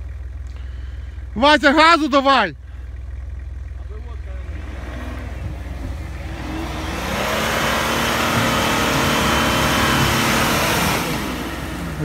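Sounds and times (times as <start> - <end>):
engine revving hard: 4.4 - 12.0.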